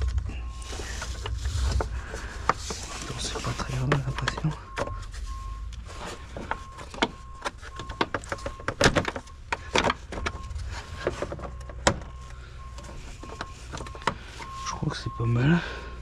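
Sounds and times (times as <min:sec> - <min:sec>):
plastic covers clicking and knocking: 0:01.2 - 0:05.0, 0:06.4 - 0:12.2, 0:12.8 - 0:14.2.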